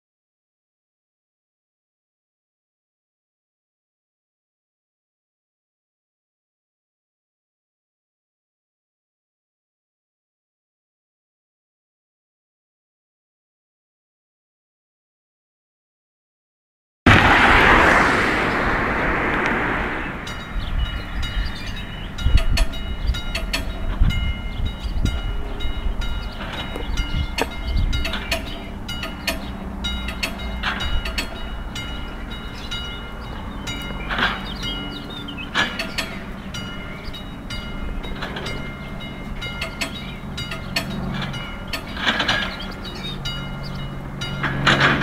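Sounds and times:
loud rushing noise: 17.1s - 22.1s
level crossing warning bell: 20.9s - 45.0s.

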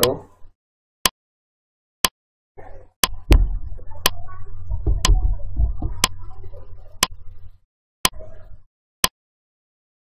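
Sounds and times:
low background rumble: 3.1s - 7.6s
timer ticking: 4.8s - 6.4s.

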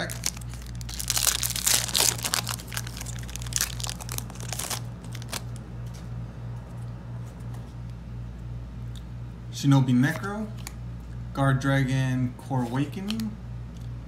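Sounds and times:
cards rustling out of wrapper: 0.0s - 5.6s
foil wrapper crinkling and tearing: 0.0s - 5.6s
steady low hum: 0.0s - 14.0s.

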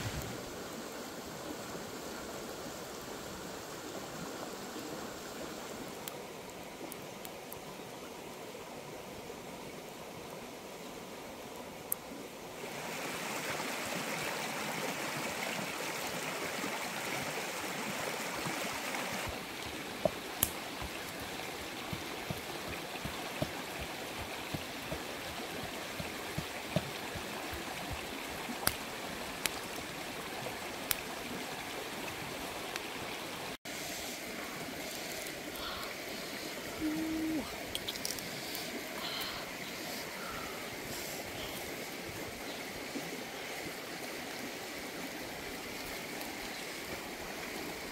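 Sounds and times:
sharp clicks and crackles: 19.6s - 21.3s.

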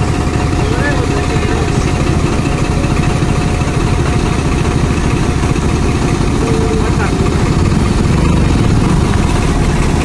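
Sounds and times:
tractor diesel engine chugging: 0.0s - 10.0s.

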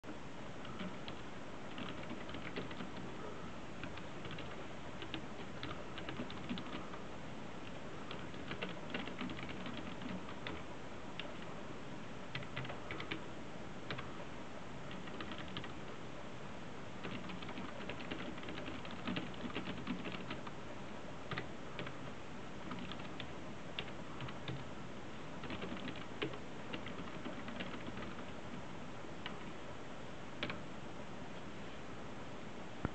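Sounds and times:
steady background hiss: 0.0s - 32.9s.

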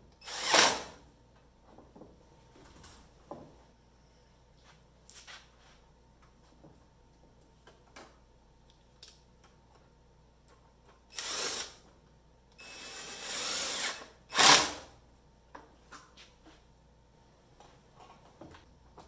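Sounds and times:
cordless drill driving screws: 0.2s - 0.9s, 11.1s - 11.8s, 12.6s - 14.8s.

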